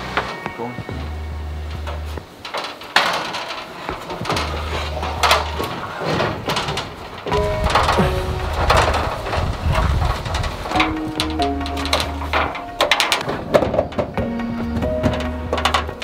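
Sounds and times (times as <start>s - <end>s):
metal ladder knocking and clattering: 1.7s - 16.0s.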